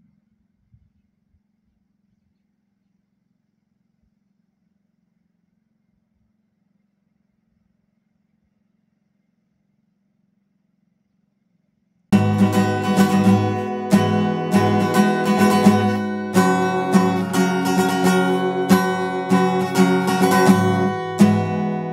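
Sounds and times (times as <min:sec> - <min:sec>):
strummed acoustic guitar: 0:12.2 - 0:21.9.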